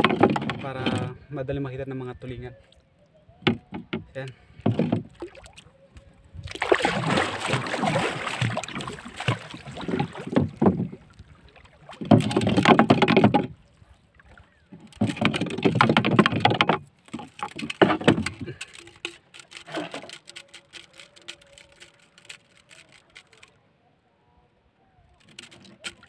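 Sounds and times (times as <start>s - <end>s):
water sloshing against hull: 0.0s - 1.3s, 2.1s - 23.6s, 25.1s - 26.0s.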